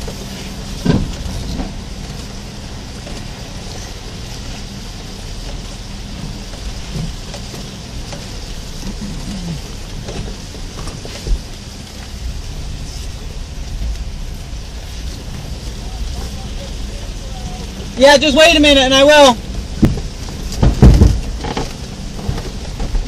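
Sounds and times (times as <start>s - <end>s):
rocks knocking under tyres: 0.0s - 4.7s, 5.4s - 12.2s, 19.5s - 23.0s
truck engine running low: 0.0s - 23.0s.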